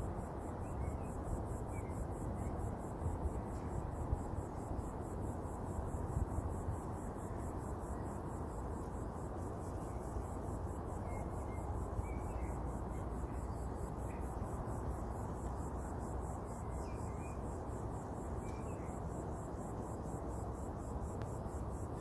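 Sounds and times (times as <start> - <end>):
cricket trilling: 0.0 - 22.0.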